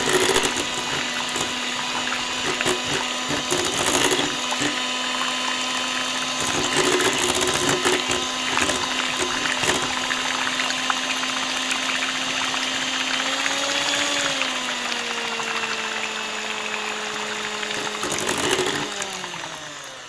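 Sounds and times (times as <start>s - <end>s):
electric hand mixer whirring: 0.0s - 20.0s.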